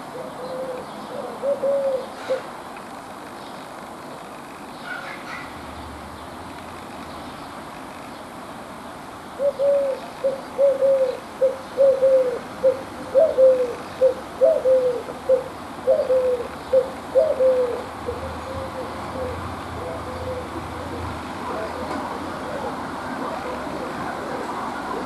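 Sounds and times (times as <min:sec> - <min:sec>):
dove cooing: 0:00.0 - 0:02.5, 0:09.4 - 0:25.0.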